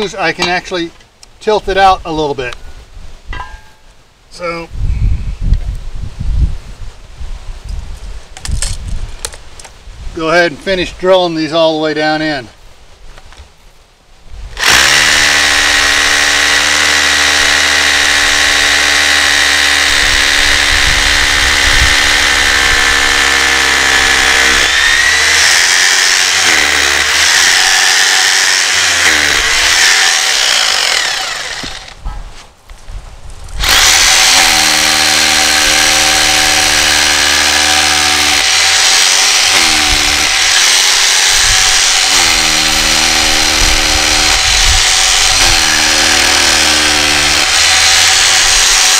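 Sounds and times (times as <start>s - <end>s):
electric drill boring into concrete: 14.6s - 32.0s, 33.6s - 48.9s.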